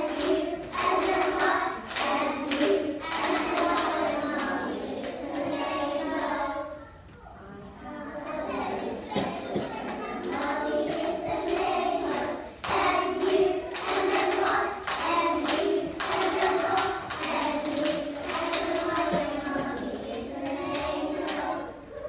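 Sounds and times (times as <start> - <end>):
children singing in unison: 0.0 - 6.8, 7.5 - 22.0
hand clapping: 9.9 - 19.9.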